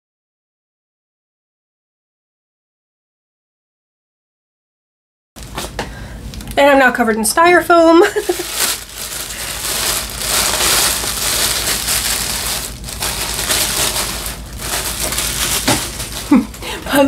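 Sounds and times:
plastic bag crinkling: 8.0s - 17.0s.

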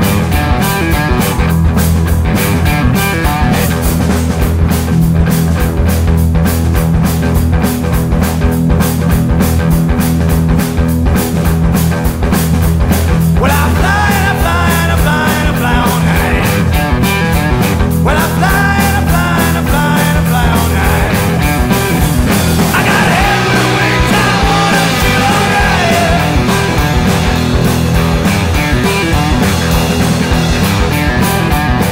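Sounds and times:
rock band playing: 0.0s - 31.9s
person singing: 13.4s - 16.7s, 18.0s - 21.4s, 22.7s - 27.0s.

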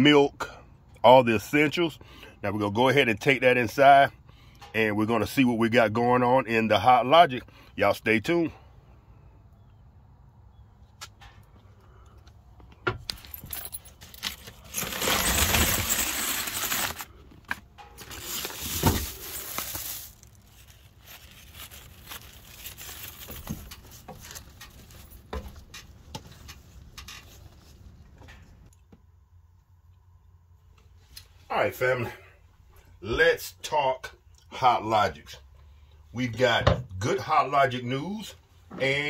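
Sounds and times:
keys jangling: 13.0s - 16.2s
loud rustling: 14.0s - 17.1s.

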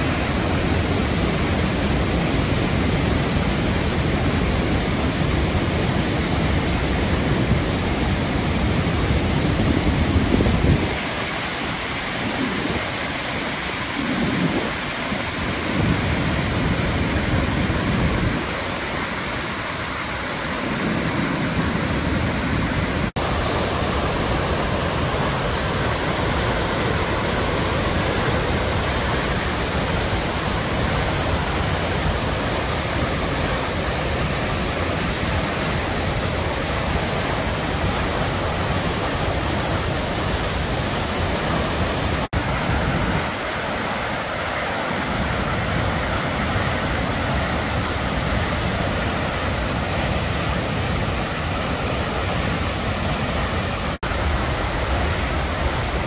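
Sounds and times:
waterfall crashing: 0.0s - 56.0s.

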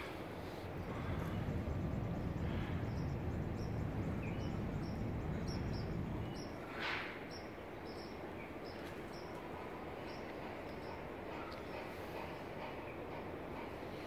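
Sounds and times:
low rumble: 0.7s - 6.6s.

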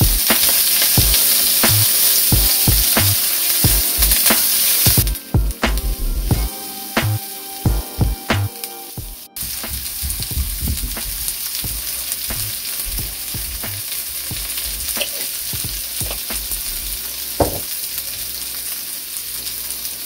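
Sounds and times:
crackling pops: 0.0s - 5.8s, 9.4s - 17.7s
vegetables sizzling in hot oil: 0.0s - 7.9s, 9.4s - 20.0s.

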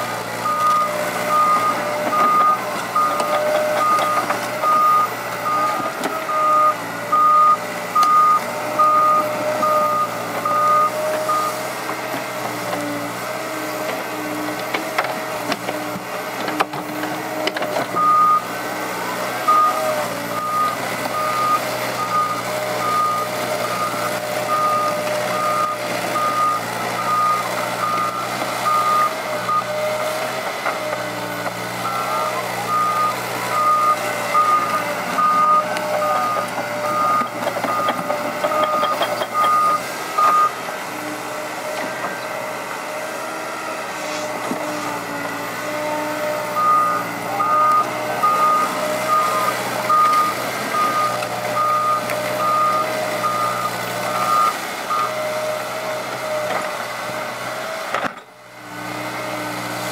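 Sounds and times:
excavator diesel engine running: 0.0s - 59.9s
backup alarm beeping: 0.4s - 11.6s, 31.8s - 40.5s, 46.4s - 55.2s.

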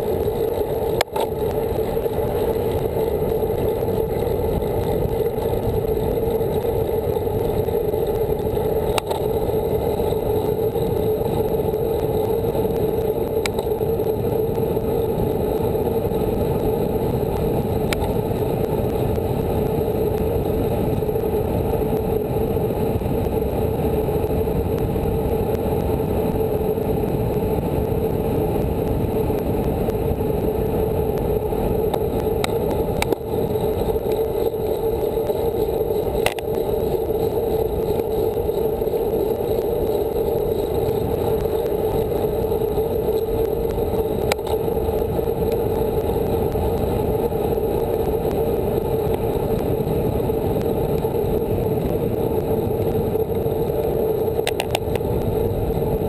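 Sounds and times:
bike tyres on asphalt: 0.0s - 56.0s
faint ticks: 11.9s - 13.8s, 31.9s - 46.9s, 54.4s - 55.3s.

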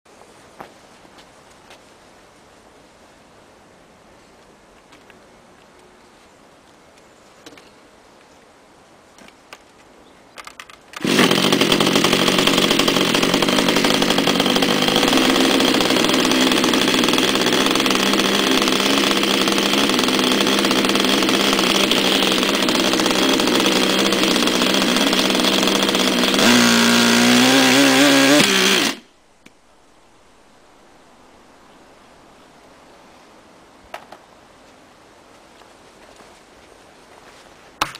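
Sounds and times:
small model engine running: 11.0s - 29.0s.

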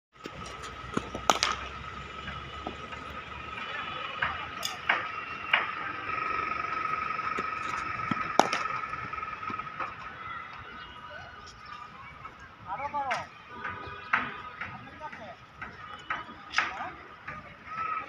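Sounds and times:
cricket bat hitting ball: 0.2s - 3.2s, 4.2s - 5.8s, 7.4s - 10.1s.

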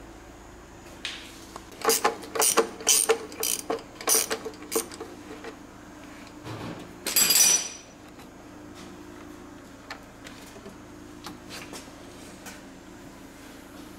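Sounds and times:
ratchet wrench clicking: 1.8s - 5.0s.

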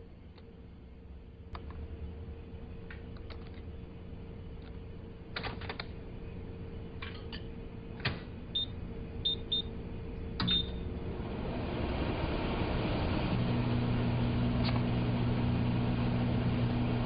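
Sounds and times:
short high keypad beeps: 10.4s - 10.8s.

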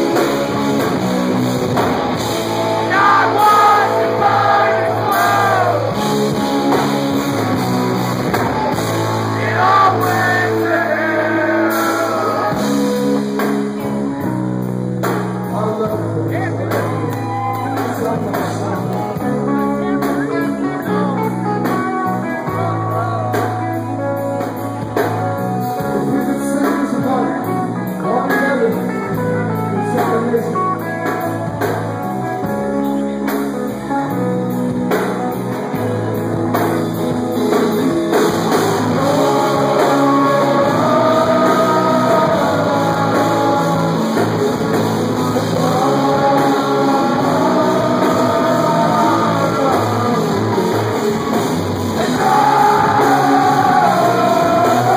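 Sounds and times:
live rock band playing: 0.0s - 54.9s
person singing: 9.2s - 13.1s, 37.8s - 54.9s.

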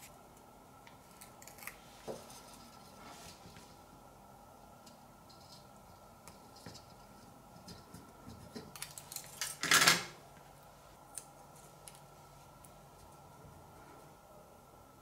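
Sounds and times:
aluminium foil crinkling: 8.5s - 9.7s.

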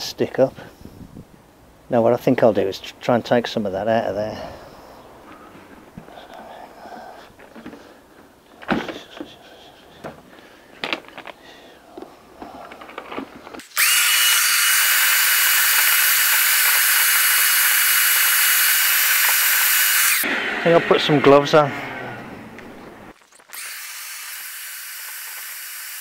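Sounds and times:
shop vacuum running with whine: 13.8s - 23.0s.

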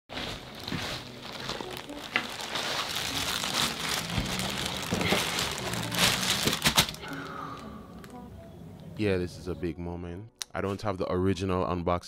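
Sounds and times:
plastic bag crinkling: 0.1s - 8.2s.

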